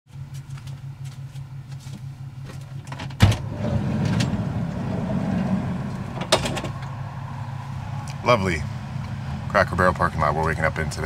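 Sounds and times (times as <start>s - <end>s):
outside noise: 0.1s - 11.0s
steady low hum: 0.1s - 11.0s
van door clunk: 2.4s - 7.0s.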